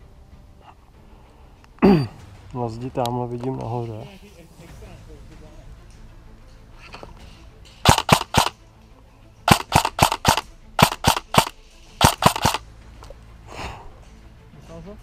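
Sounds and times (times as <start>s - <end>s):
airsoft gun shots: 7.8s - 8.6s, 9.5s - 12.6s.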